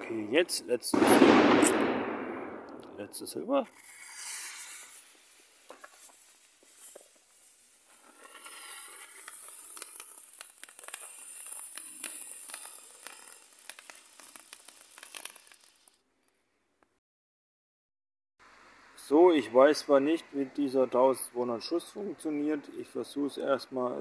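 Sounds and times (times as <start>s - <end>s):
firework fizzing and crackling: 0.0s - 16.0s.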